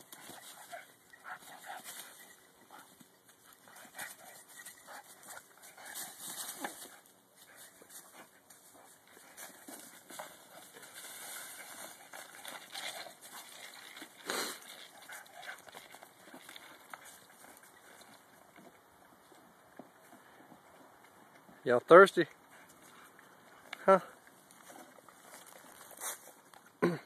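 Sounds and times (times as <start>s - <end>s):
paws crunching dry leaves: 0.1s - 18.7s, 24.4s - 26.5s.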